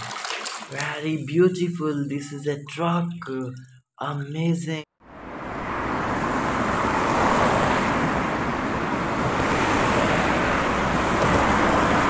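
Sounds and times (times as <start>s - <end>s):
motorway traffic roar: 5.0s - 12.0s.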